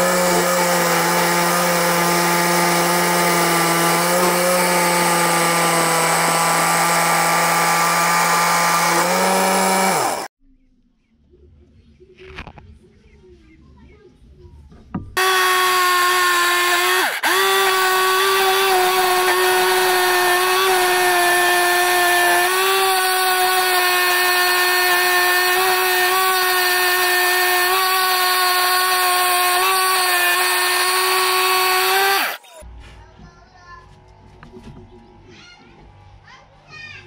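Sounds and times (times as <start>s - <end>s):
saw cutting wood with motor whine: 0.0s - 10.3s, 15.2s - 32.6s.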